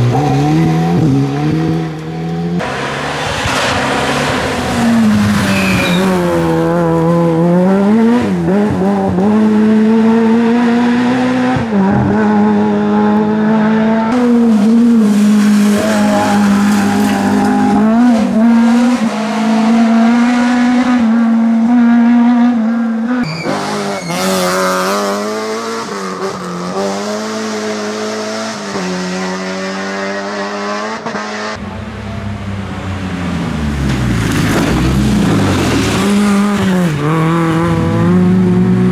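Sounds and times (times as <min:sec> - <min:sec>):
rally car engines revving: 0:00.0 - 0:38.9.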